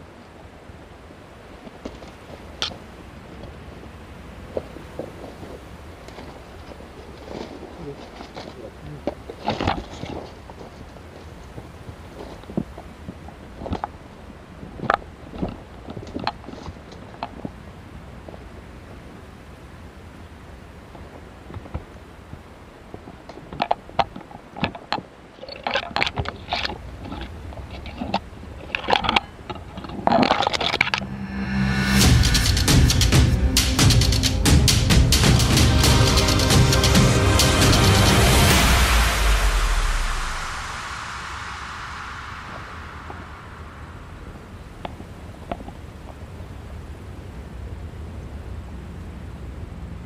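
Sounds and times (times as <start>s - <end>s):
wind rumble on microphone: 0.0s - 33.6s, 38.6s - 50.0s
branches scraping: 4.4s - 14.0s, 23.0s - 33.1s
music: 31.4s - 40.5s.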